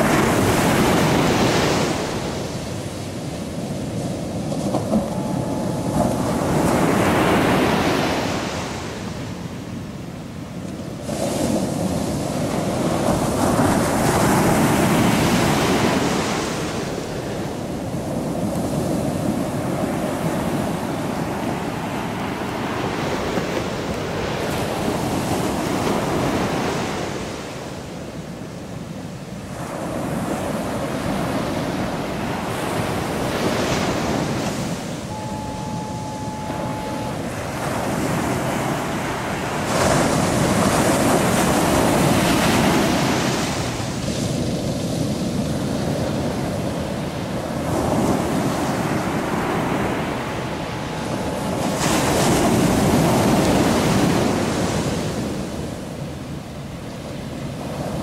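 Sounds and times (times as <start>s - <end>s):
ocean surf breaking: 0.0s - 10.0s, 29.5s - 55.6s
faint steady tone: 3.1s - 10.6s, 33.6s - 39.7s.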